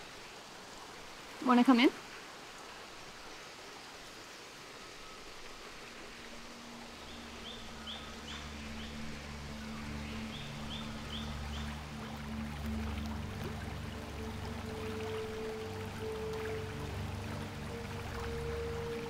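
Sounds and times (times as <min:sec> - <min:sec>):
running stream: 0:00.0 - 0:19.0
low droning film score: 0:05.6 - 0:19.0
bird chirping: 0:06.9 - 0:12.0.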